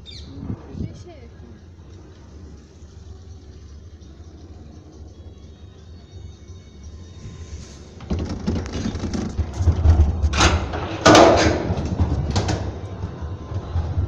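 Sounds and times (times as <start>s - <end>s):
cable car low rumble: 0.0s - 14.0s
clattering: 8.0s - 14.0s
loud metal knocks: 8.1s - 12.7s.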